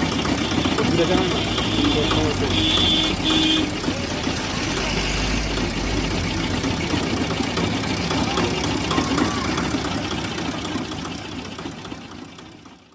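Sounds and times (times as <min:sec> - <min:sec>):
juice crusher engine running: 0:00.0 - 0:12.9
faint voices: 0:06.6 - 0:10.3.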